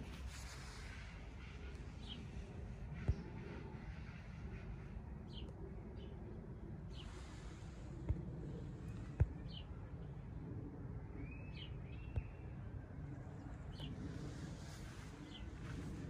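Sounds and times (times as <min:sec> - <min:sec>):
birds chirping: 0:13.3 - 0:16.0.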